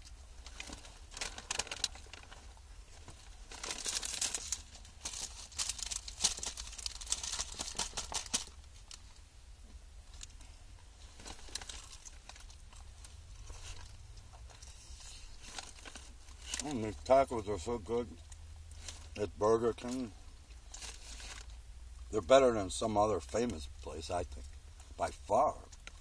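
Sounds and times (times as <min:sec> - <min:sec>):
paper food bag crinkling: 0:00.4 - 0:09.1, 0:11.0 - 0:17.4.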